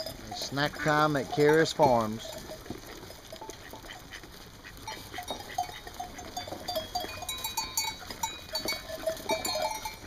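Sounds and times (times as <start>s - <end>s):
sheep eating from feed trough: 0.0s - 10.0s.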